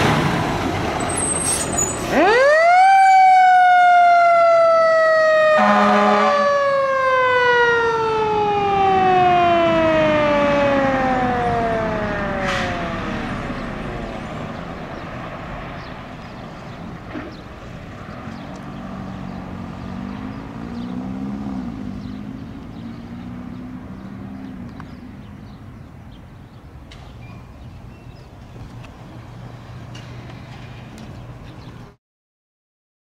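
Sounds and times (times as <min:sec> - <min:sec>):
diesel engine accelerating: 0:00.0 - 0:05.6, 0:06.4 - 0:25.9
light street traffic: 0:00.0 - 0:32.0.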